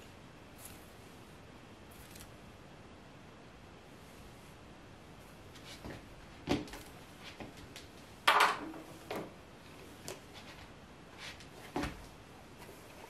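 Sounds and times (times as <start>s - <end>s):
hair rustling: 0.0s - 1.2s.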